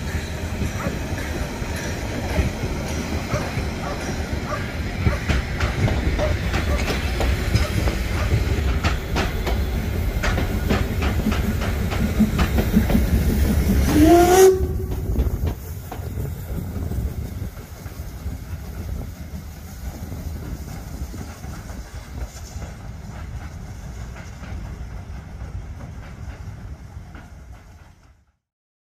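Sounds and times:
steam hissing: 0.0 - 28.2
steam train rumble: 0.0 - 28.4
clanks and knocks: 5.0 - 14.0
steam whistle: 13.8 - 15.2.

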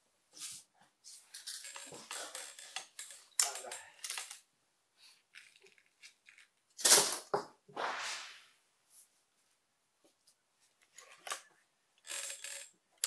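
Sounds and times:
air rifle clicks and rustles: 1.4 - 4.4.

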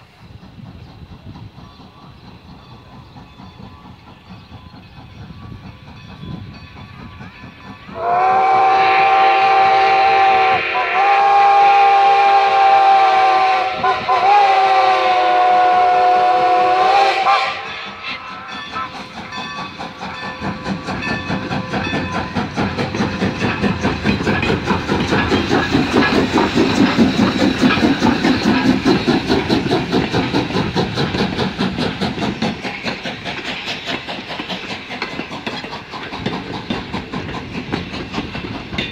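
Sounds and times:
coaches clicking over rail joints: 0.0 - 8.6, 12.0 - 38.9
steam locomotive clatter: 0.0 - 38.9
steam whistle blast: 7.9 - 18.2.

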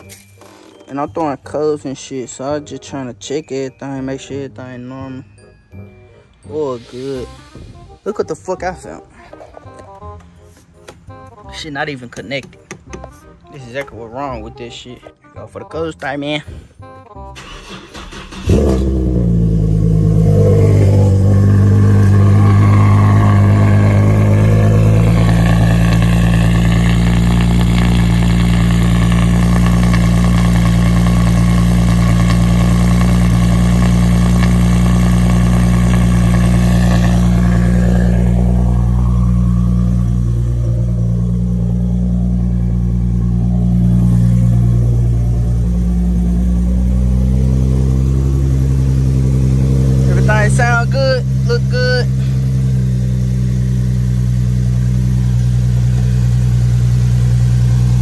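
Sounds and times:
car engine starting and idling: 17.2 - 58.0.

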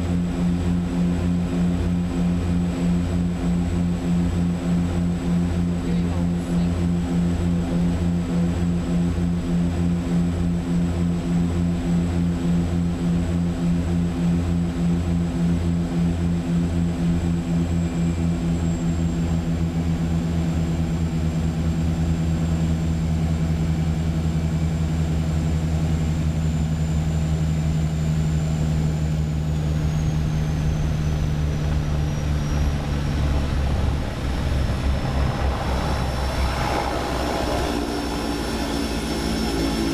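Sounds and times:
propeller engines droning: 0.0 - 39.9
high turbine whine: 17.2 - 39.9.

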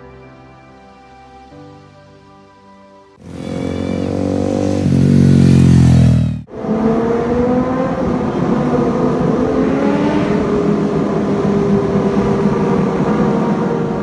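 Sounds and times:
motorcycle engine running: 3.2 - 6.5.

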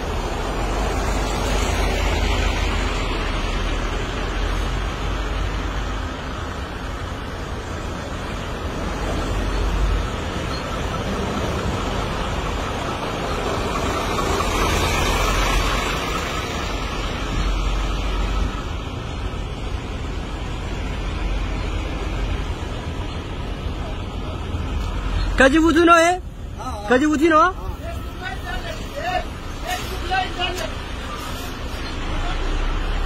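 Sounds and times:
car road and wind noise: 0.0 - 33.0
low rumble of trucks: 0.0 - 33.0
hiss: 28.7 - 32.2.

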